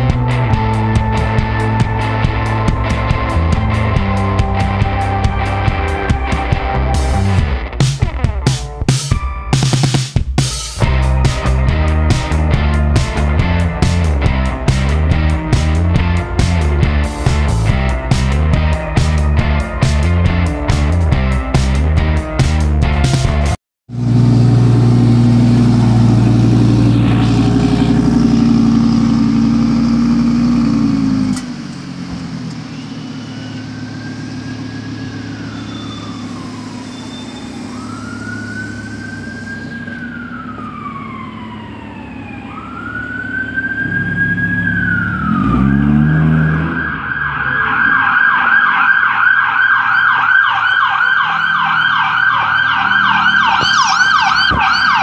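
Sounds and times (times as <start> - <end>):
distant siren wailing: 0.0 - 7.6, 24.3 - 55.0
police siren yelping: 0.0 - 8.3, 22.8 - 23.6, 25.5 - 30.2, 32.6 - 55.0
car engine idling loudly: 22.9 - 43.8.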